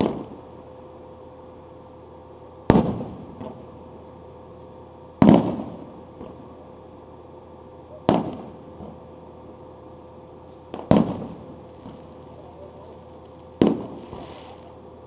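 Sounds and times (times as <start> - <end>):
firework shells booming: 0.0 - 0.5, 2.6 - 3.8, 5.2 - 6.5, 7.9 - 9.1, 10.6 - 12.5, 13.5 - 14.6.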